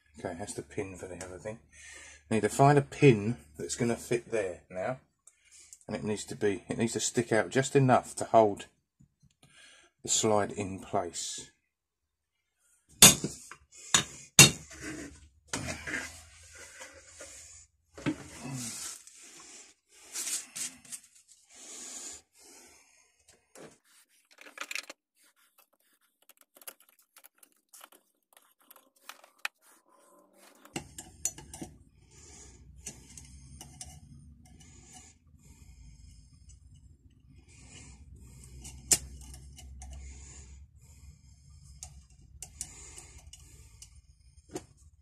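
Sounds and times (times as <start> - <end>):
metal parts clinking and scraping: 24.3 - 25.0.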